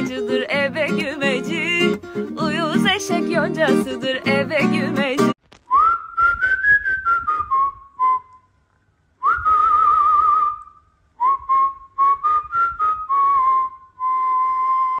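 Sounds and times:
person whistling a melody: 5.7 - 8.5, 9.2 - 15.0.

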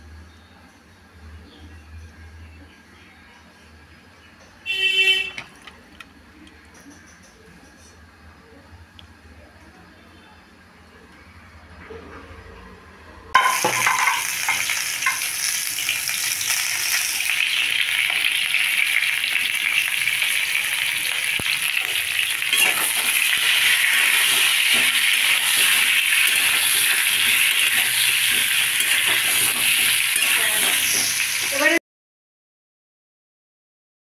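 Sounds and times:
potatoes sizzling in hot oil: 13.4 - 31.8
metal spatula scraping: 21.8 - 31.7.

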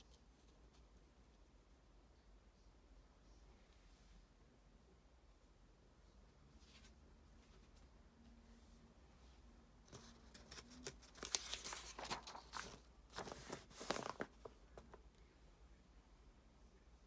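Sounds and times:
paper pages turning: 9.9 - 15.0.

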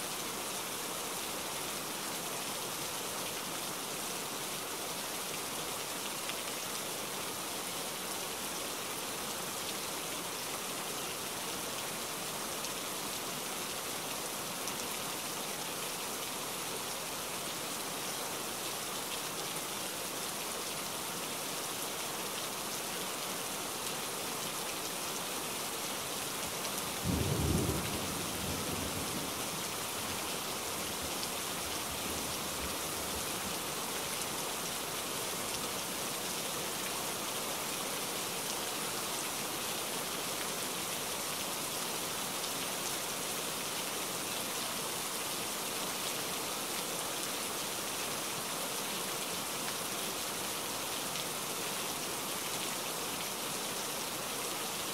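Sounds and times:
rain on wet paving: 0.0 - 54.9
low rumble of thunder: 27.1 - 29.6.

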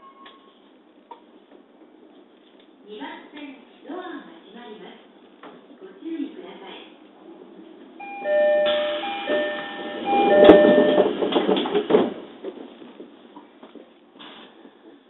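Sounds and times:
two-tone door chime: 8.0 - 11.3
sliding doors shutting: 8.0 - 12.8.

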